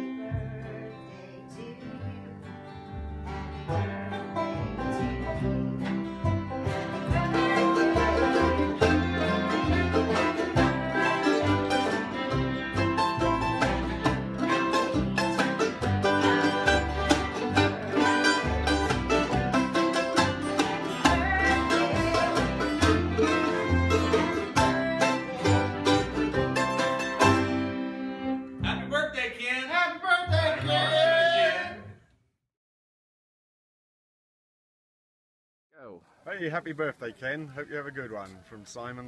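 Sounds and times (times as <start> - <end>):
fiddle: 0.0 - 28.8
banjo: 0.0 - 29.0
mandolin: 0.0 - 29.0
acoustic guitars: 0.0 - 31.9
upright bass line: 2.0 - 29.4, 30.3 - 31.8.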